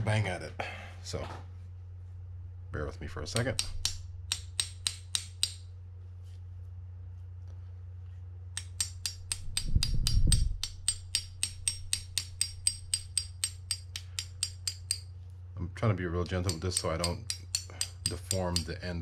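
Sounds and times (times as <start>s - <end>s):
hammer tapping steel punch: 3.3s - 5.7s, 8.5s - 15.1s, 16.2s - 19.0s.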